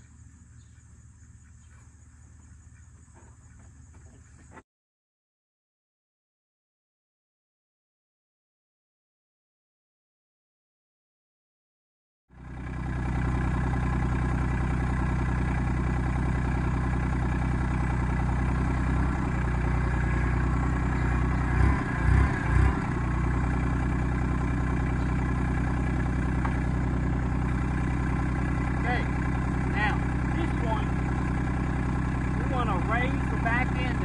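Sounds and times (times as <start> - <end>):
diesel tractor engine idling: 0.0 - 4.6, 12.3 - 34.0.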